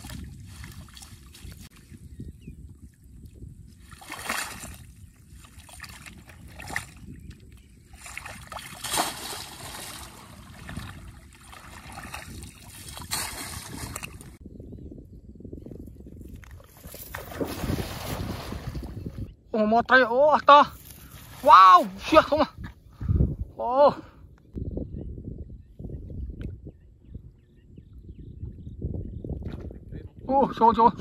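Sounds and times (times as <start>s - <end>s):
net splashing in muddy water: 3.9s - 7.0s, 7.9s - 14.4s.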